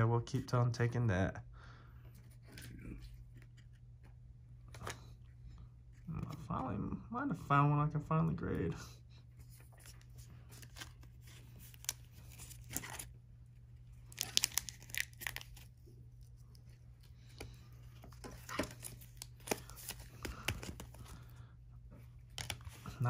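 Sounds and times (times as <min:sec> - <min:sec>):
steady low hum: 0:00.0 - 0:23.0
wrapper torn open and crumpled: 0:14.0 - 0:15.7.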